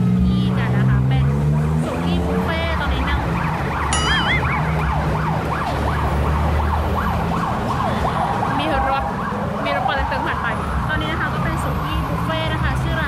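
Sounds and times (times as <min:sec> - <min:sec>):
road traffic hum: 0:00.0 - 0:13.0
emergency siren sweeping: 0:03.1 - 0:11.6.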